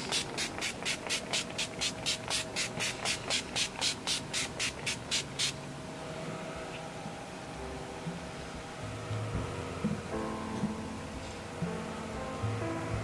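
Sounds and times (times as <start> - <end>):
spray bottle misting: 0.0 - 5.6.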